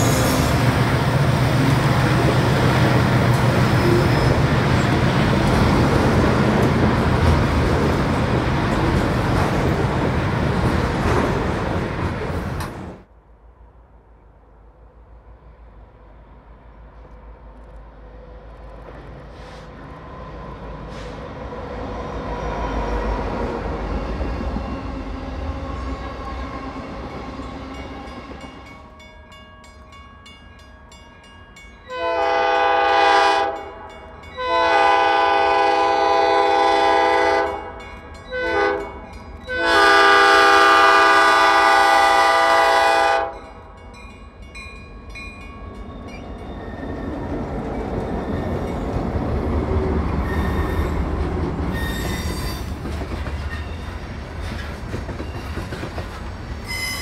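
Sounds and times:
locomotive air horn: 0.0 - 0.7, 31.9 - 33.8, 34.4 - 43.4
freight train rumbling past: 0.0 - 57.0.

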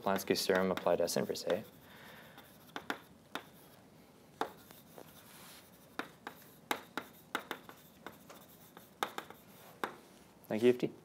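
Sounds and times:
chalk tapping on blackboard: 0.0 - 3.8, 4.4 - 10.1
chalk scratching: 0.1 - 3.8, 4.4 - 10.0.

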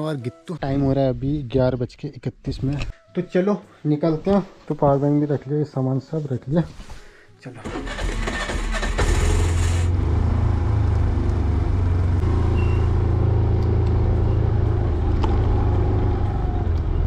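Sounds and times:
scooter engine droning: 7.6 - 17.0.

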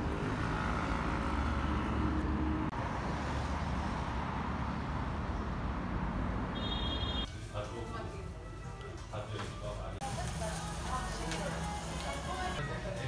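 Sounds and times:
low rumble of passing cars: 0.0 - 7.3.

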